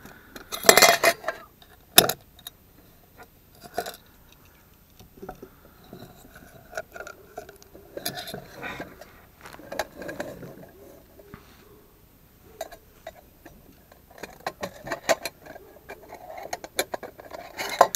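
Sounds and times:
metal cans and pot clinking: 0.5s - 2.2s, 12.6s - 17.9s.

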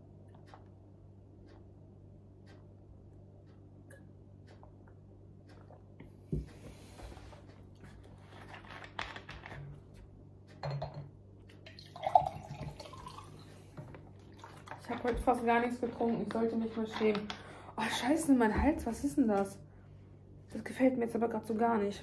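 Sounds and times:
water pouring into glass: 11.7s - 13.6s.

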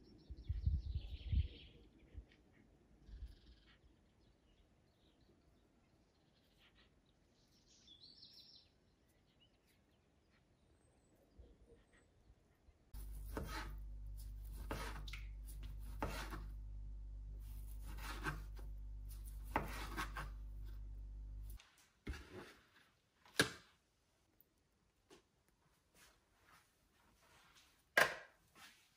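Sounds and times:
scraping on a wooden board: 13.0s - 13.8s, 14.5s - 16.5s, 17.8s - 18.7s, 19.4s - 20.4s
steady low hum: 13.0s - 21.6s.

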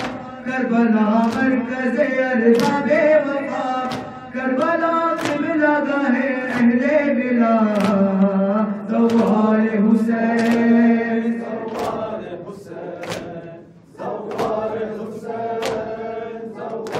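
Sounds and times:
chest-beating slaps: 0.0s - 0.3s, 2.5s - 2.9s, 3.8s - 5.5s, 11.6s - 12.2s, 13.0s - 13.4s, 14.2s - 14.8s, 15.6s - 16.0s
person chanting a lament: 0.0s - 12.8s.

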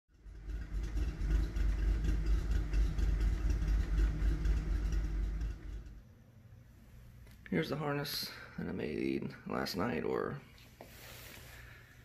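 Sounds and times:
car engine idling: 0.1s - 7.1s.

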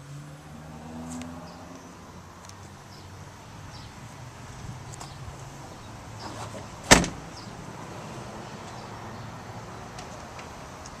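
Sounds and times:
car door slamming shut: 6.8s - 7.2s.

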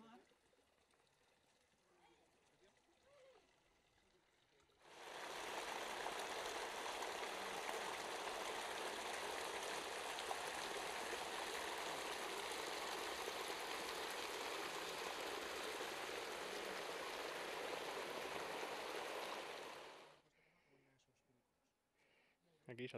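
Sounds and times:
water flowing in channel: 0.0s - 20.2s.

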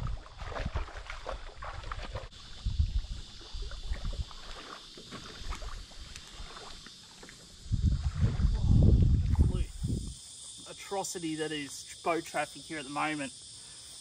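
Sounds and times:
water splashing and lapping: 0.0s - 9.5s.

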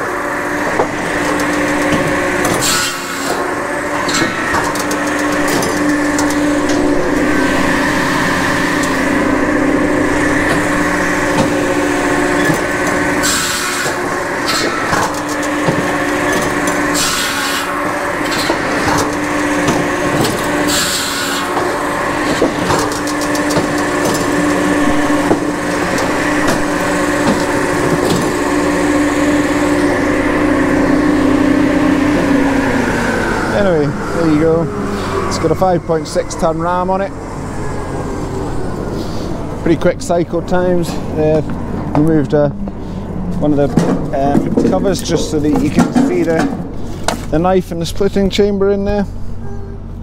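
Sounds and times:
circular saw cutting logs: 0.0s - 42.5s
firewood processor humming: 0.0s - 50.0s
wood knocking on machine: 0.7s - 9.2s, 10.1s - 34.2s.

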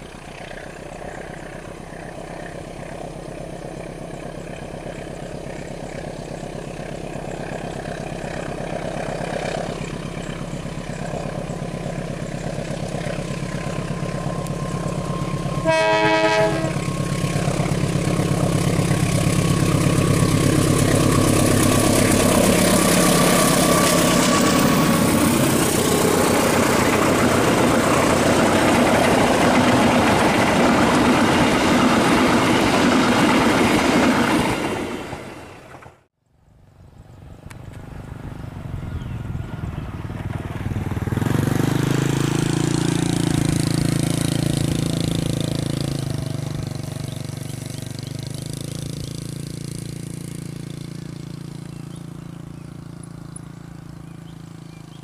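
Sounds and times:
diesel locomotive engine drone: 0.0s - 55.0s
train horn blast: 15.2s - 17.1s
wheels clattering over rail joints: 16.8s - 36.0s.

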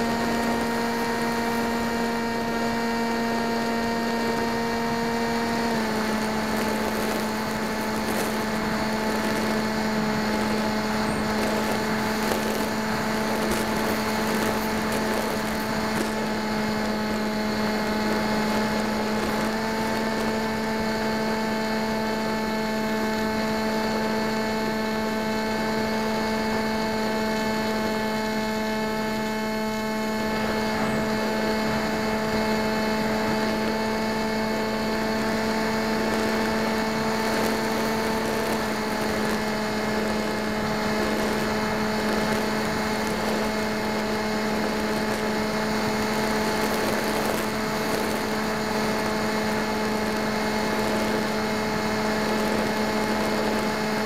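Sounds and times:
model plane motor whine: 0.0s - 54.0s.

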